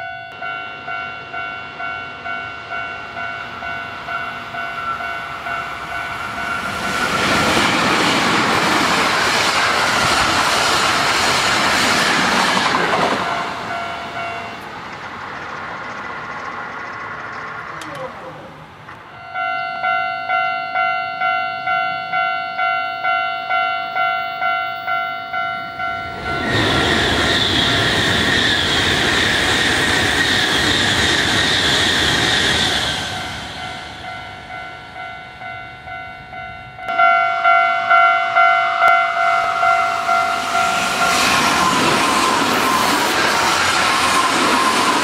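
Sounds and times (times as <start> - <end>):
high-speed train rushing past: 0.0 - 22.3, 23.0 - 45.0
level crossing bell ringing: 13.2 - 14.6, 19.1 - 26.4, 33.6 - 41.2.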